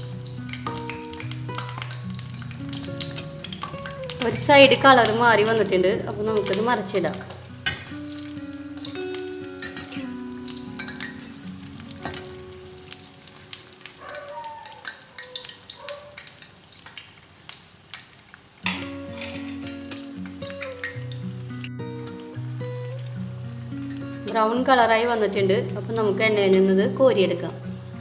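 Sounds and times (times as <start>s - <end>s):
steel skimmer clinking on pan: 0.0s - 15.8s, 18.6s - 21.2s
food sizzling in hot oil: 0.0s - 28.0s.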